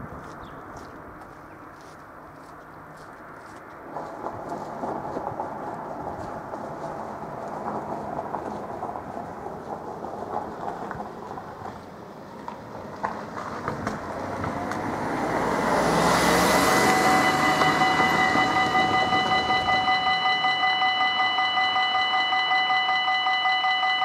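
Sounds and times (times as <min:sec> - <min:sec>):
outdoor background noise: 0:00.0 - 0:24.0
rushing noise: 0:03.5 - 0:21.8
level crossing warning bell: 0:16.0 - 0:24.0.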